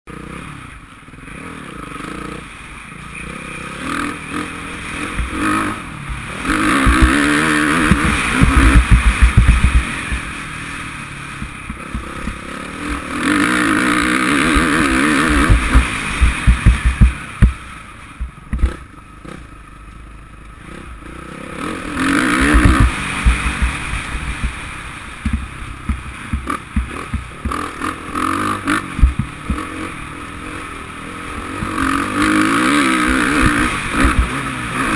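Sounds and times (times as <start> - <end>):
motocross engine revving: 0.1 - 34.9
thumps over rough track: 5.0 - 10.6, 11.4 - 18.9, 21.9 - 30.0, 31.3 - 34.9.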